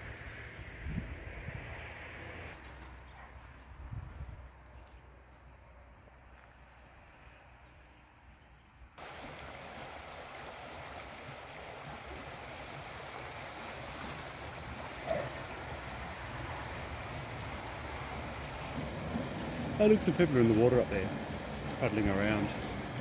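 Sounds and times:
river water rushing: 9.0s - 23.0s.

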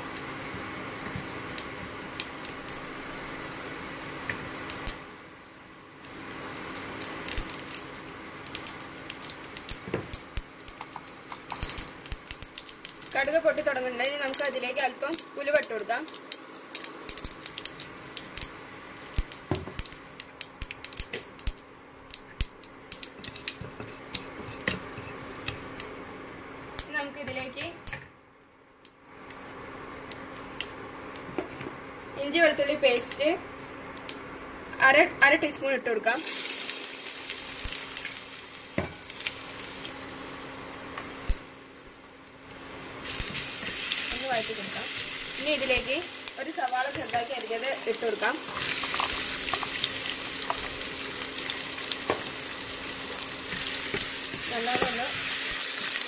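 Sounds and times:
seeds popping in hot oil: 0.1s - 27.0s, 36.2s - 40.1s, 40.9s - 41.6s, 42.6s - 56.0s
paste sizzling in hot oil: 36.2s - 41.3s, 42.3s - 56.0s.

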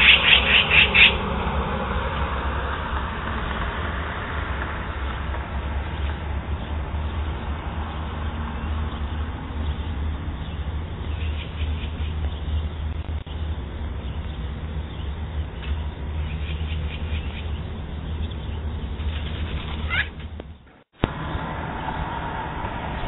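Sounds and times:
magpie chattering: 0.0s - 1.2s, 19.0s - 20.2s
low rumble: 0.0s - 19.8s, 20.4s - 23.0s.

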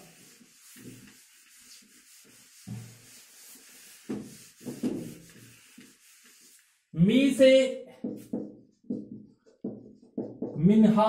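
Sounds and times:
eraser rubbing on whiteboard: 0.0s - 6.7s.

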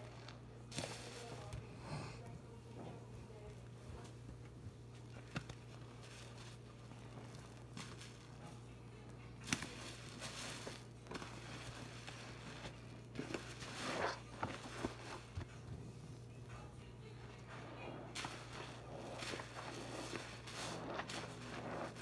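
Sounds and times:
sponge squelching in suds: 9.4s - 15.5s, 17.4s - 22.0s.

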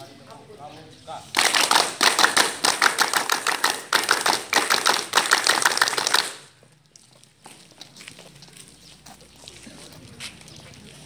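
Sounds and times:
people clapping hands: 1.3s - 6.6s.

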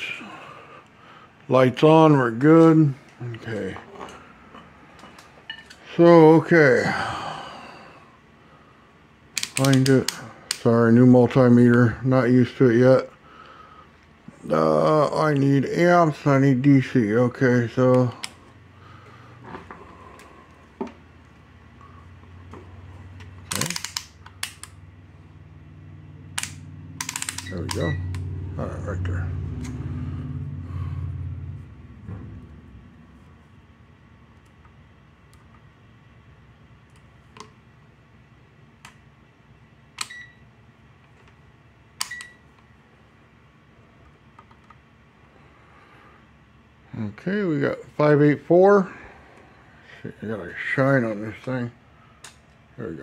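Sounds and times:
low electrical hum: 0.0s - 53.0s
multimeter dial clicking: 9.4s - 10.2s, 23.5s - 24.8s, 26.4s - 28.2s.

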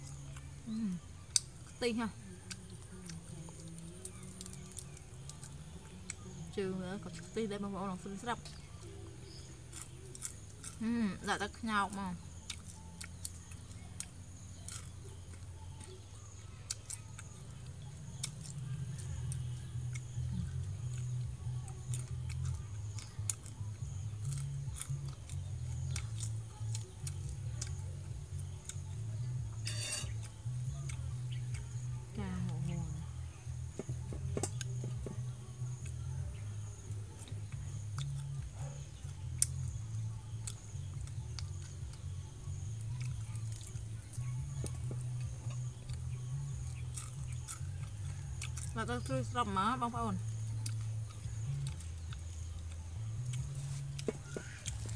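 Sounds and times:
low steady hum: 0.0s - 54.9s
crisp crunching while eating: 8.5s - 11.0s, 11.9s - 21.2s, 21.8s - 28.8s, 42.7s - 49.1s.

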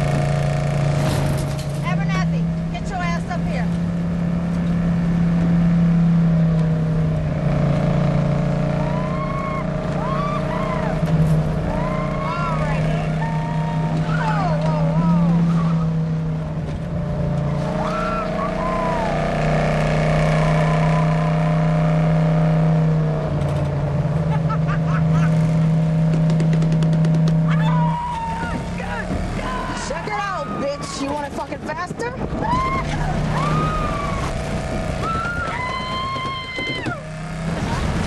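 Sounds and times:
car engine running: 0.0s - 38.0s
woman yelling and whooping: 11.7s - 15.9s, 17.7s - 19.2s, 27.5s - 31.3s, 32.2s - 34.4s, 35.0s - 37.0s.

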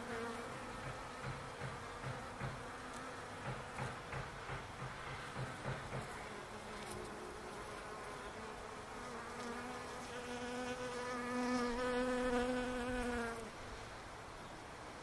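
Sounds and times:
bees buzzing: 0.0s - 13.5s
close bee buzzing: 0.0s - 13.6s.

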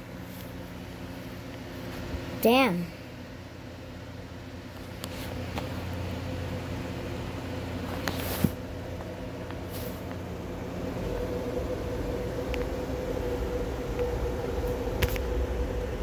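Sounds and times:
machine humming: 8.6s - 16.0s.

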